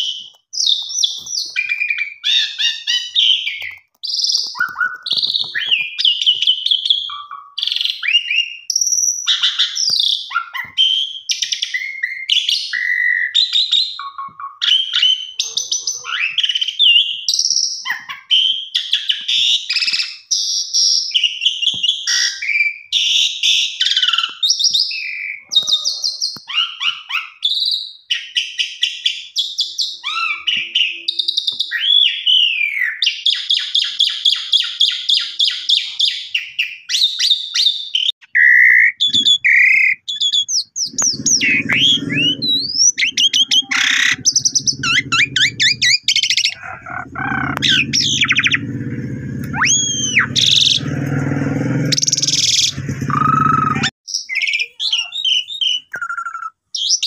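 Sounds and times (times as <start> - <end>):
starling singing: 39.0 - 56.3.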